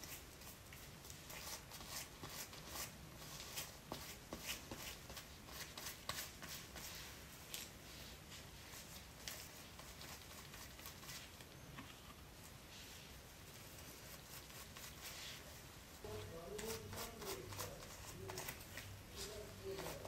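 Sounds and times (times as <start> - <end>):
brush swishing through hair: 0.0 - 11.4, 12.6 - 20.0
gloved fingers rustling hair: 12.2 - 20.0.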